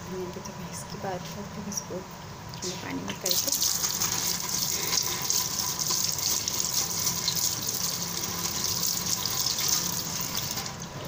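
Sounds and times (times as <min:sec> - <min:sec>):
tap water running into sink: 0:03.2 - 0:11.0.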